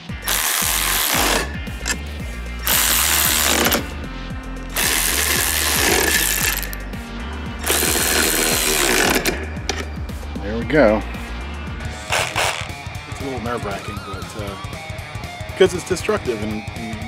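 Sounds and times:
cordless ratchet spinning nuts: 0:00.0 - 0:02.0, 0:02.6 - 0:03.9, 0:04.7 - 0:06.8, 0:07.6 - 0:09.8, 0:12.1 - 0:12.8.

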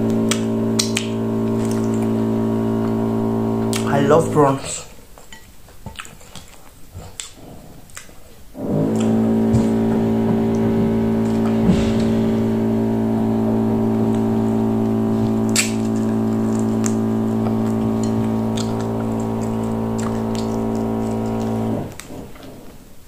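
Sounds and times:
machine humming: 0:00.0 - 0:04.7, 0:08.6 - 0:22.7
wet eating smacks: 0:05.8 - 0:11.6.

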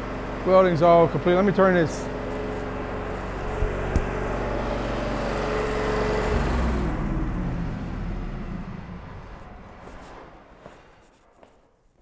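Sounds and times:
welding machine humming: 0:02.0 - 0:07.6.

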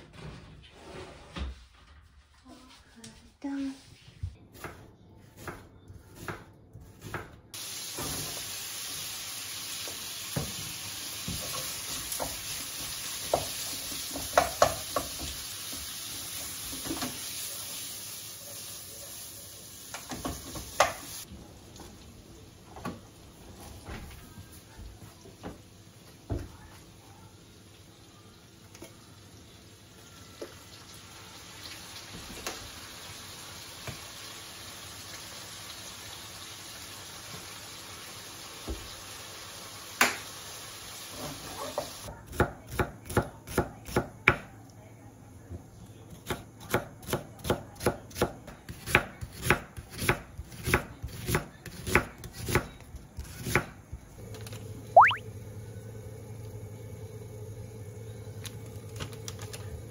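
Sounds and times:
knife chopping on cutting board: 0:46.2 - 0:53.8.

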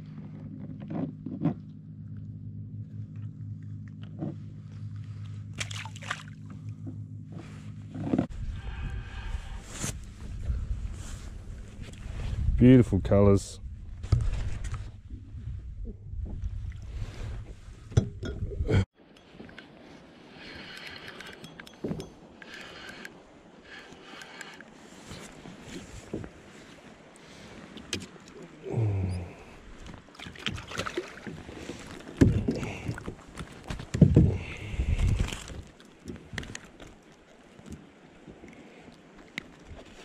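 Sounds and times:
low rumble of handling: 0:00.0 - 0:19.8, 0:31.2 - 0:40.0
steady low hum: 0:00.0 - 0:19.8
fish splashing into water: 0:05.6 - 0:06.5.

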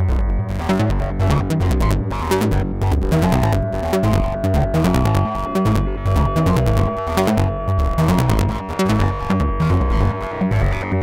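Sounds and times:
pulsing synth bass line: 0:00.0 - 0:11.0
clicky pitched synth notes: 0:00.7 - 0:11.0
held synth tone: 0:03.2 - 0:10.3.

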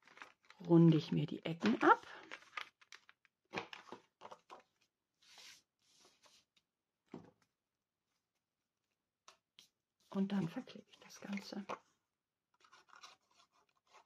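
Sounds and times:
paper handling: 0:00.0 - 0:00.7, 0:01.6 - 0:06.4, 0:12.6 - 0:14.0
paper sliding rustle: 0:05.2 - 0:06.5.

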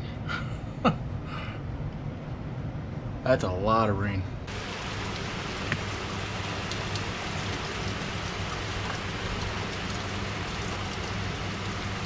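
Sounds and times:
heavy rain hissing: 0:04.5 - 0:12.0.

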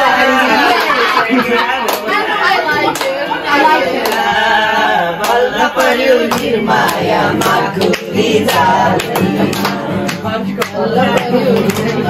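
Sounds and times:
group of voices singing: 0:00.0 - 0:12.0
hand claps: 0:00.7 - 0:03.2, 0:04.0 - 0:04.3, 0:05.2 - 0:12.0.

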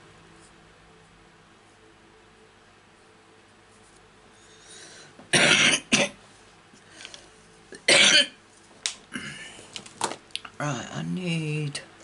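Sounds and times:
woman coughing: 0:05.3 - 0:06.2, 0:07.8 - 0:08.4.

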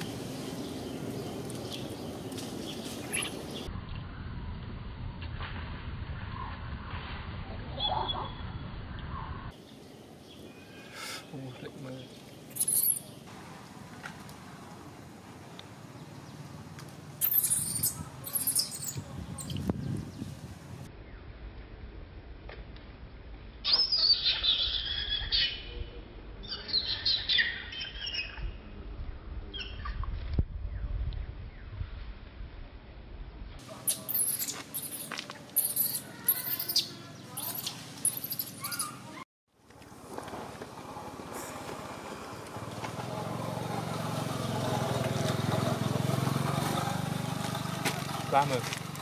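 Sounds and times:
vehicle engine humming: 0:00.0 - 0:05.1, 0:33.6 - 0:49.0
infant monkey squealing: 0:12.5 - 0:13.0, 0:17.2 - 0:19.0, 0:23.7 - 0:25.6, 0:33.8 - 0:39.2.

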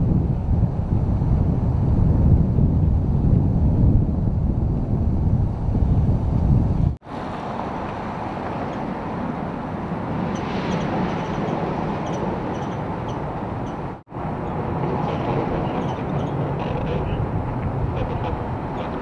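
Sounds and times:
highway traffic noise: 0:05.6 - 0:19.0.

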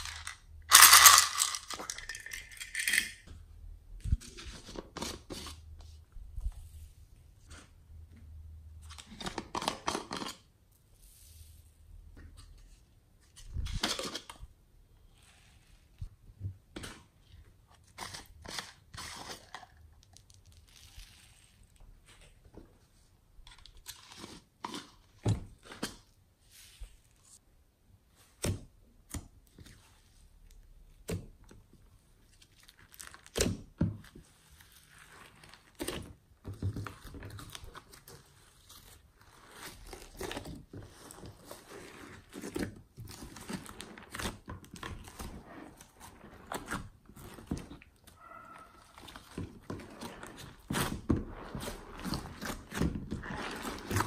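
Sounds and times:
foam beads tipped from tub: 0:00.0 - 0:03.2
slime crackling and squishing: 0:19.8 - 0:22.3, 0:32.0 - 0:33.4, 0:34.2 - 0:54.0.

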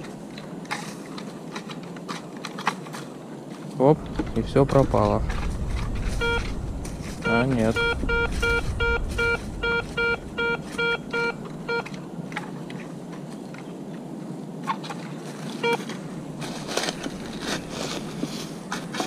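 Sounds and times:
soft rustling and scraping: 0:00.0 - 0:19.0
metal detector beeping: 0:06.1 - 0:06.6, 0:07.2 - 0:11.9, 0:15.6 - 0:15.8.

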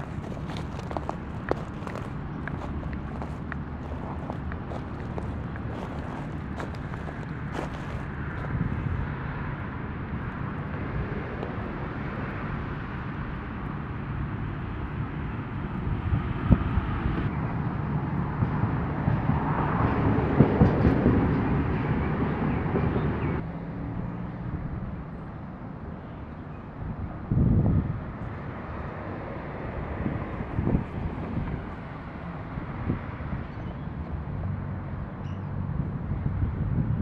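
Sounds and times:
vehicle passing: 0:00.0 - 0:09.6
road traffic rumble: 0:00.0 - 0:37.0.

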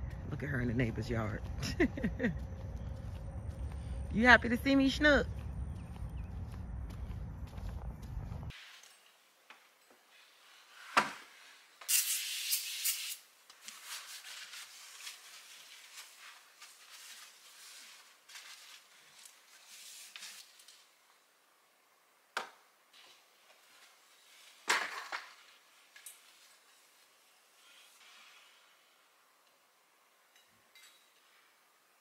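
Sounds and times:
aerosol spray hissing: 0:11.9 - 0:13.2.

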